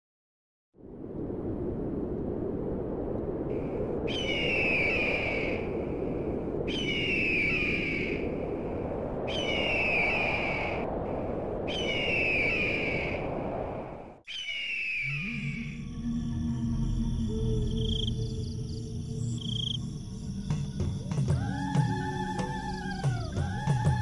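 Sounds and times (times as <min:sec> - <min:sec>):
steady rushing noise: 0:01.0 - 0:14.2
bird of prey crying: 0:14.3 - 0:15.6.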